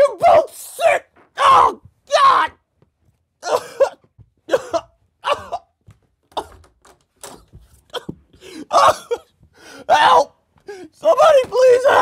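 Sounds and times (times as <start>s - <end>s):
man coughing and gasping: 3.4s - 6.7s, 7.8s - 9.5s.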